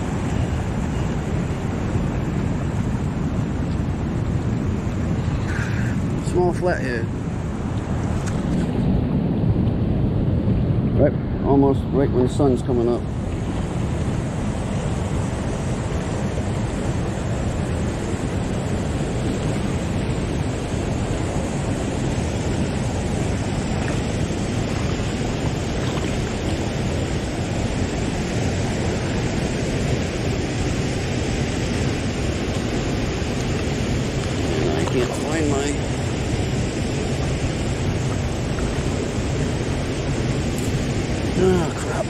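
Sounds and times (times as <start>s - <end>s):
water rushing through spillway: 11.5s - 42.0s.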